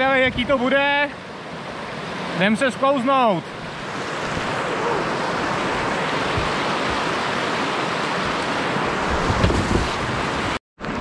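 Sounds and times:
river water rushing: 0.6s - 11.0s
low thumps: 9.1s - 10.1s.

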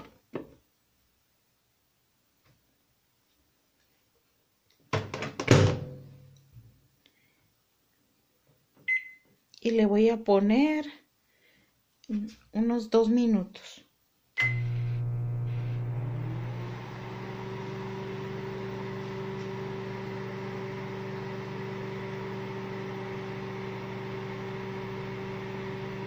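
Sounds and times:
microwave keypad beep: 8.9s - 9.2s, 14.4s - 14.7s
microwave oven humming: 14.4s - 26.0s.

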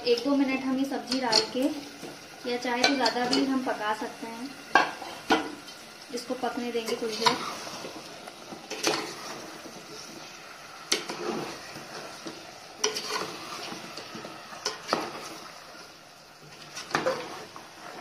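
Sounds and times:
low sizzle of frying: 0.0s - 18.0s
steel ladle scraping metal pot: 10.9s - 15.4s, 16.5s - 18.0s.

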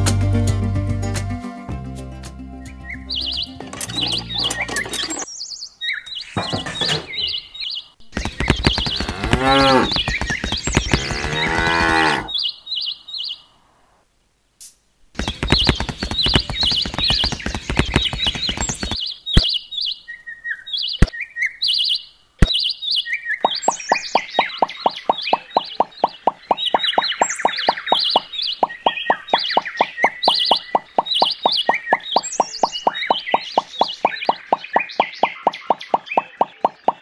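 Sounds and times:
bird chirps: 2.6s - 13.6s, 15.2s - 37.0s
cow mooing: 9.0s - 9.9s, 11.0s - 12.3s.

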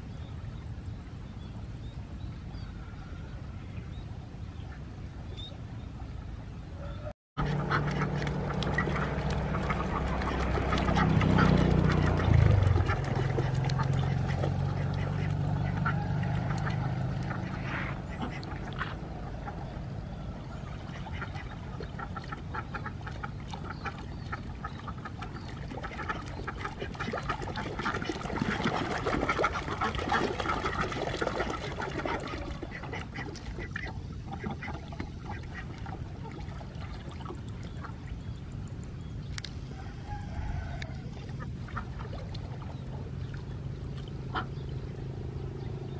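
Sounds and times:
ducks paddling in water: 0.0s - 45.9s
low steady hum: 0.0s - 45.9s
ducks quacking: 6.8s - 36.8s, 44.3s - 44.7s.

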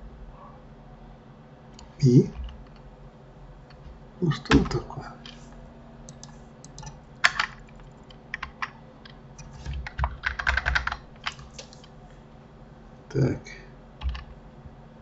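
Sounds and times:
keyboard and mouse clicking: 6.1s - 11.9s, 14.0s - 14.4s.

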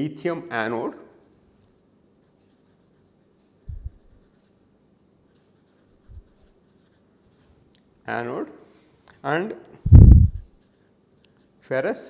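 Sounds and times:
marker writing on paper: 1.3s - 4.6s, 5.2s - 7.6s
dull low thumps: 3.7s - 4.0s, 9.9s - 10.5s.

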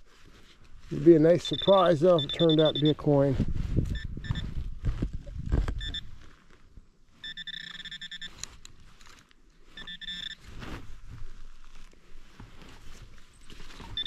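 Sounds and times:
metal detector target tone: 1.3s - 3.3s, 3.9s - 4.6s, 5.8s - 6.1s, 7.2s - 8.5s, 9.7s - 10.4s.

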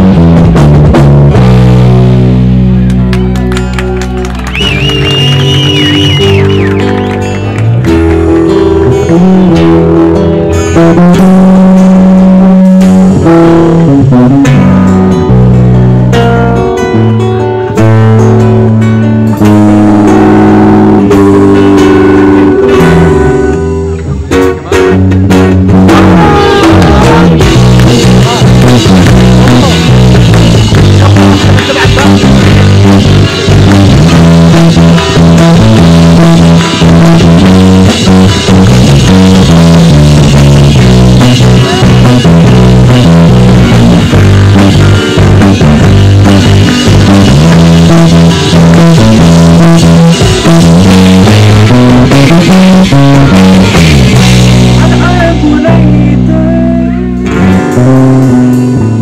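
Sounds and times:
bass line: 0.0s - 59.0s
drum kit: 0.0s - 59.0s
guitars playing chords: 0.0s - 59.0s.

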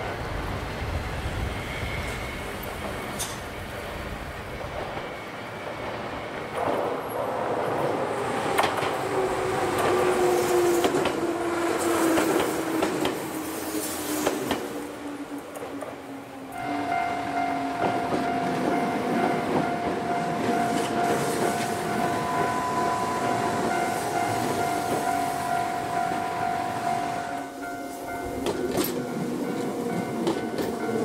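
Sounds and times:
train wheels clacking over joints: 28.3s - 31.0s.

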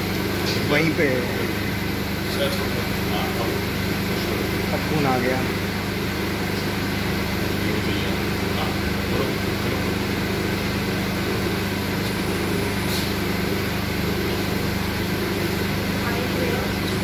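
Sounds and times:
machinery humming: 0.0s - 17.0s.

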